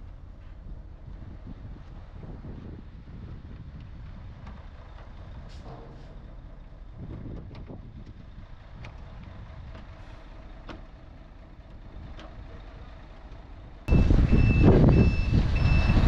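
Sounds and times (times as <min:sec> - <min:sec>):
heavy engine rumble: 0:00.0 - 0:16.0
low yard rumble: 0:00.0 - 0:16.0
reversing alarm beeping: 0:13.9 - 0:16.0.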